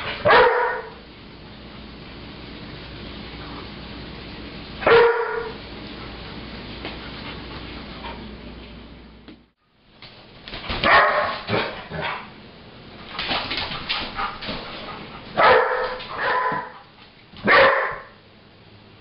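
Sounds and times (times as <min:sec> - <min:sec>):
dog barking: 0:00.2 - 0:01.0, 0:04.8 - 0:05.6, 0:10.8 - 0:12.3, 0:15.4 - 0:16.8, 0:17.4 - 0:18.2.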